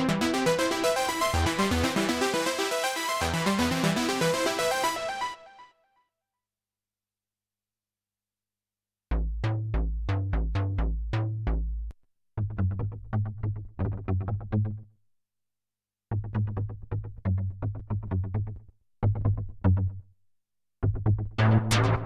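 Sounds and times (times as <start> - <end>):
staccato synthesizer bass notes: 9.1 - 14.8, 21.0 - 22.0.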